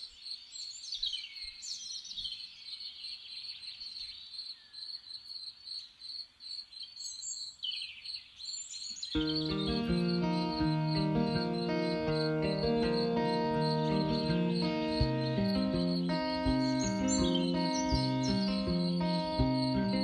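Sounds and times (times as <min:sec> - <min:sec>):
guitar music: 0:09.2 - 0:20.0.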